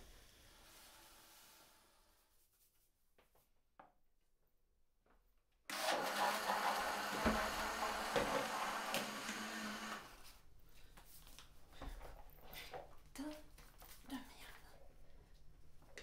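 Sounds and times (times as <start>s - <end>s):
electric motor whirring: 5.7s - 10.2s.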